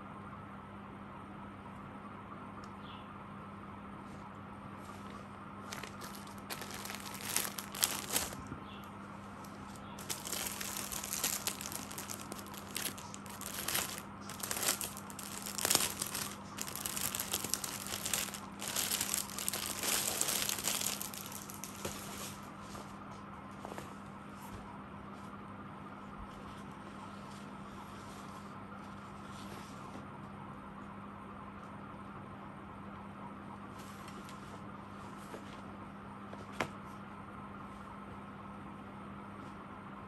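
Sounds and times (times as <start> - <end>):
plastic packaging crinkling: 5.7 - 8.5, 9.4 - 22.4.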